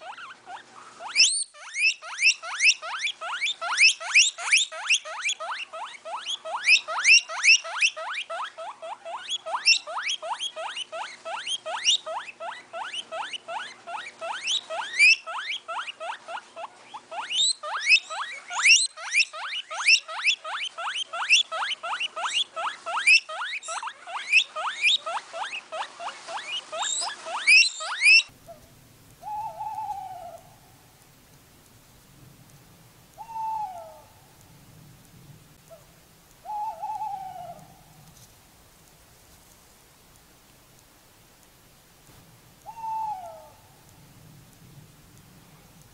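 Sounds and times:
animal high rising chirps: 0.0s - 15.8s, 17.1s - 28.3s, 29.2s - 30.5s, 36.4s - 37.9s.

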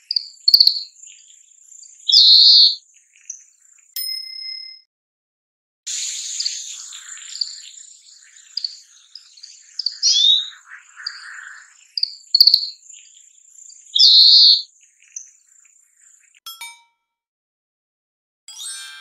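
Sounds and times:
bird twittering: 0.0s - 4.0s, 5.9s - 16.4s
bird buzzy call: 5.9s - 12.8s, 14.0s - 14.6s.

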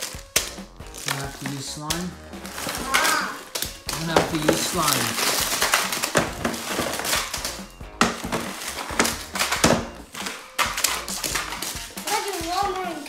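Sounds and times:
toy wheels rolling on table: 2.4s - 13.0s
plastic clacks and knocks: 2.6s - 13.0s.

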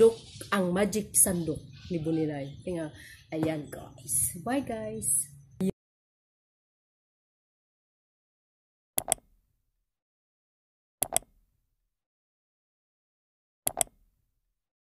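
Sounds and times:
mouse double clicks: 9.0s - 9.3s, 11.0s - 11.4s, 13.7s - 14.0s.

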